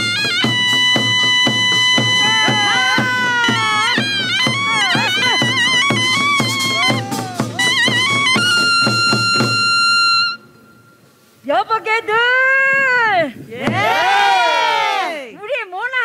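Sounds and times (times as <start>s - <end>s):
steady drum beats: 0.0s - 10.4s, 12.7s - 14.4s
shrill reed wind melody: 0.0s - 14.9s.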